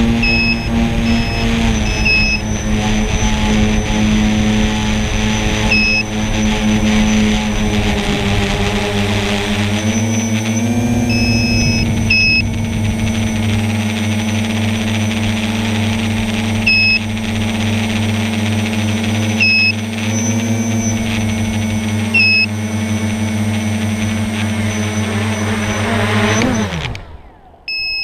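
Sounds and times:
high electronic beeps: 0:00.0 - 0:07.5, 0:09.8 - 0:23.7, 0:27.6 - 0:28.0
drone motors whining: 0:00.0 - 0:28.0.

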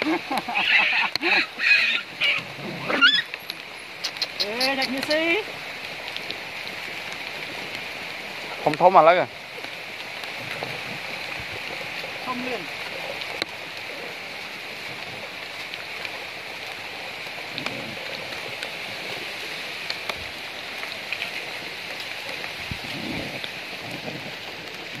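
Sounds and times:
steady rain falling: 0:00.0 - 0:25.0.

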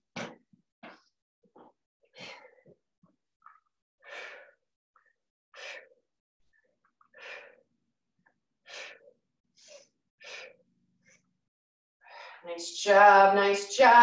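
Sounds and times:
person breathing out hard: 0:05.6 - 0:06.0, 0:08.6 - 0:10.6.

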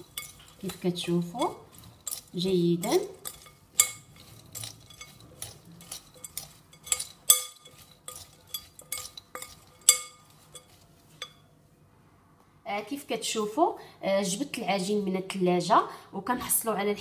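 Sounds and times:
metal spoon clinking on glass bowl: 0:00.0 - 0:11.4.

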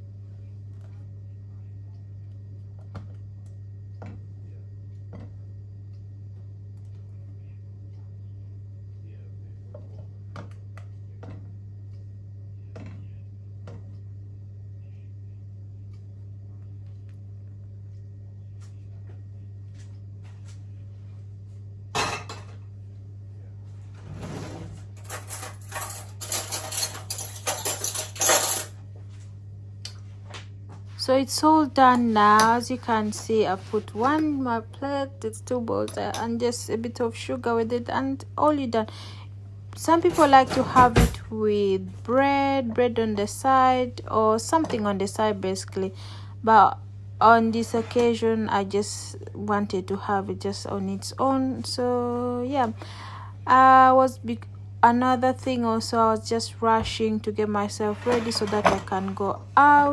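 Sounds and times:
steady low hum: 0:00.0 - 0:59.9
utensils and dishes clinking: 0:25.0 - 0:28.8.

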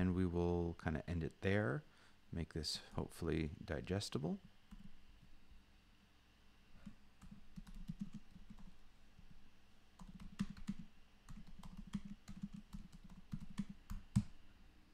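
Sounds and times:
computer keyboard typing: 0:04.7 - 0:04.9, 0:06.8 - 0:08.8, 0:10.0 - 0:14.3.

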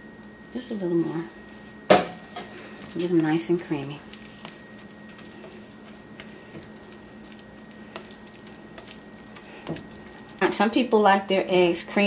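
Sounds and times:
steady low hum: 0:00.0 - 0:12.0
spatula scraping eggs in skillet: 0:02.4 - 0:10.6.

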